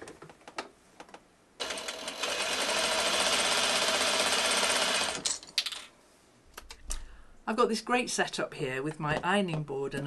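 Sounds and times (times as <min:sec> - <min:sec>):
sewing machine stitching: 0:01.6 - 0:05.4.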